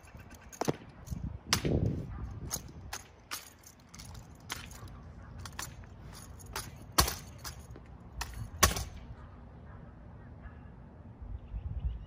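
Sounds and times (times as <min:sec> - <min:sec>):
rifles slapped and caught: 0:00.5 - 0:01.9, 0:06.4 - 0:09.0.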